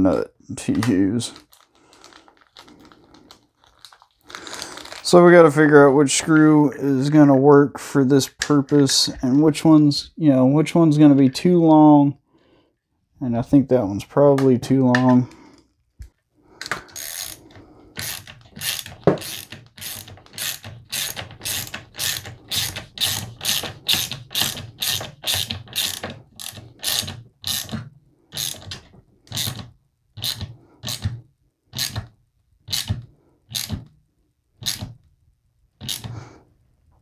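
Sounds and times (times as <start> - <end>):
ratcheting screwdriver clicks: 18.0 - 27.8, 35.8 - 36.1.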